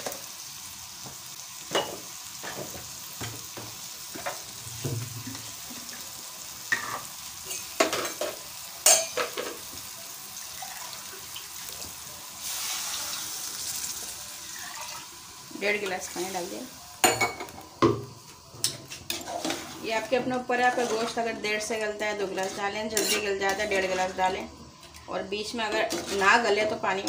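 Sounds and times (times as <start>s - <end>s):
food sizzling in a pot: 0.0s - 27.0s
water poured into hot pot hissing: 9.4s - 17.0s
ladle clinking and scraping pot: 18.6s - 19.8s, 20.6s - 21.2s, 22.4s - 24.0s.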